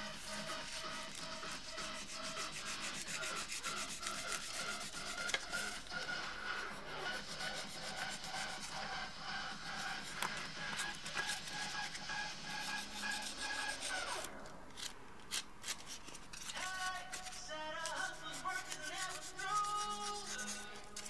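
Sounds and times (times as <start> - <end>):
knife scraping foam: 0.0 - 9.1, 9.7 - 21.0.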